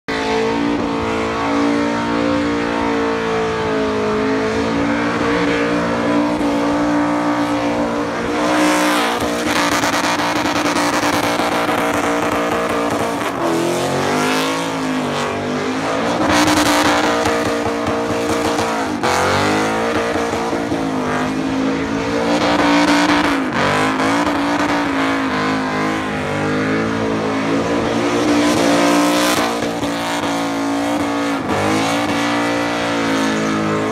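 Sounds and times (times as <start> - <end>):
engine revving high: 0.1 - 33.9.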